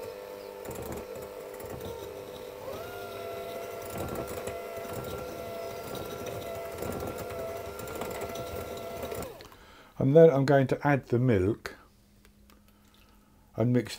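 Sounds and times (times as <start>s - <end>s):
electric mixer motor whine: 0.0s - 9.5s
mixer beaters rattling: 0.6s - 9.4s.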